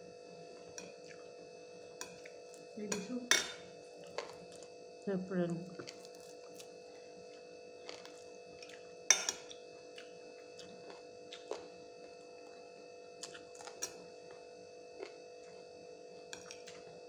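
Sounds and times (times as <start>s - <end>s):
steady hum: 0.0s - 17.0s
clinks against ceramic plate: 2.9s - 3.6s, 9.1s - 9.5s.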